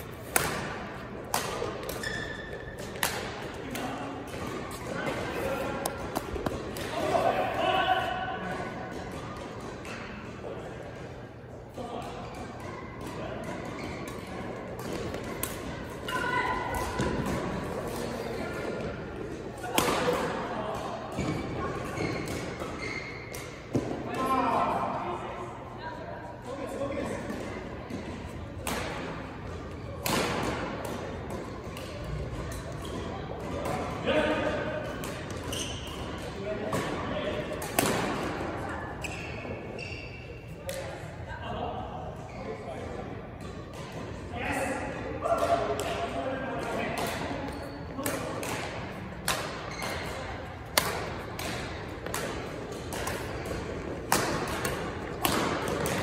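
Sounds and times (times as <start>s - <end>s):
rackets striking shuttlecock: 0.2s - 7.0s, 12.3s - 18.0s, 28.6s - 33.8s, 34.9s - 38.4s, 45.4s - 56.0s
badminton racket hitting shuttlecock: 47.0s - 56.0s.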